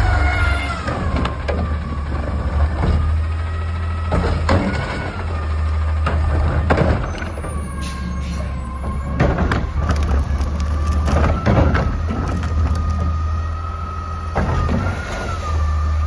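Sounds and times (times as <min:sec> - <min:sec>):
metal arm and cart clunks: 0:04.0 - 0:13.1.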